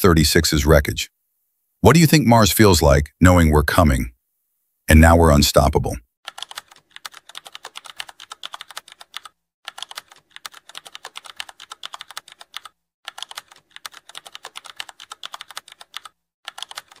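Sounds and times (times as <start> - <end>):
keyboard typing clicks: 6.3 - 17.0.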